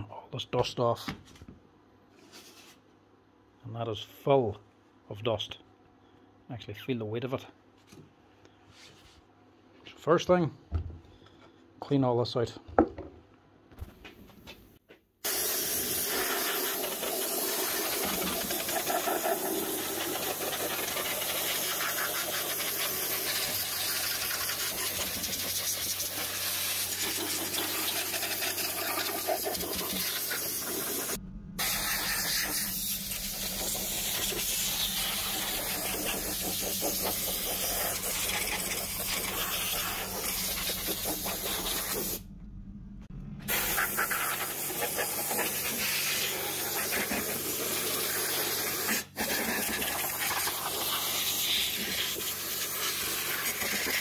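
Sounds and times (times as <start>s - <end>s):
pressure washer jet hissing: 15.2s - 42.2s, 43.5s - 54.0s.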